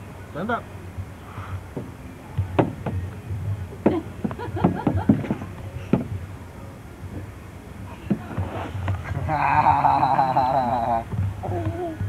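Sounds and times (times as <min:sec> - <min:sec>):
steady low hum: 0:00.0 - 0:12.0
sharp knocks and taps: 0:01.8 - 0:03.1.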